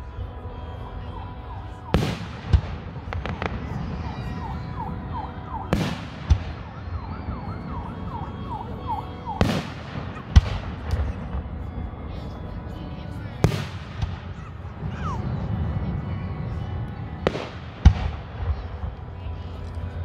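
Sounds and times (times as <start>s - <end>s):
fireworks booming and bursting: 1.8s - 11.9s, 13.4s - 15.9s, 17.2s - 19.1s.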